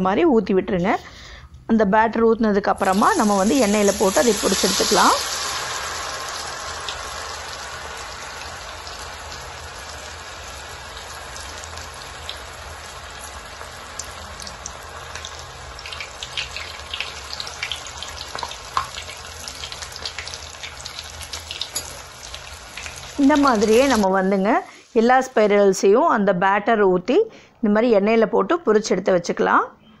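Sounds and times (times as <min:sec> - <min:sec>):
potato deep-frying in oil: 0:02.8 - 0:26.0
oil crackling and popping: 0:02.9 - 0:24.0.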